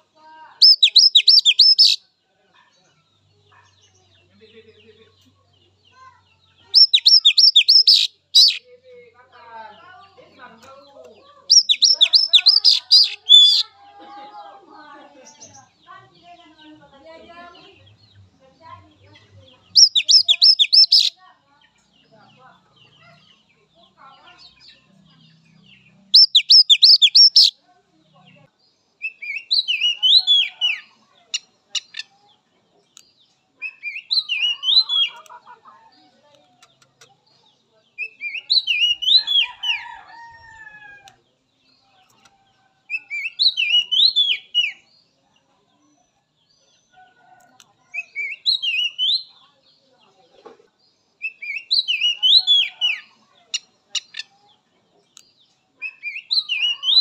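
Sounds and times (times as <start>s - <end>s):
bird singing whistled notes: 0.6s - 2.0s, 6.8s - 8.6s, 11.5s - 13.6s, 19.8s - 21.1s, 26.1s - 27.5s, 42.9s - 44.8s.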